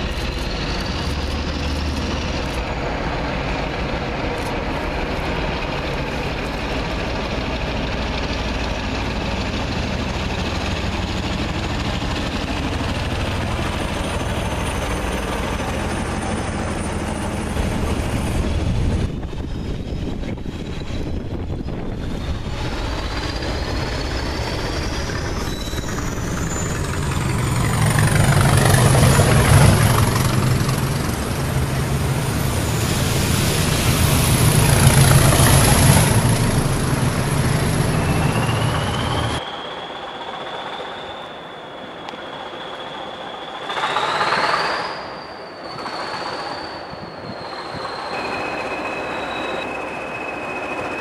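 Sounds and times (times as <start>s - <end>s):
diesel locomotive engine throb: 0.0s - 51.0s
turbocharger whistle: 14.0s - 31.2s, 32.5s - 51.0s.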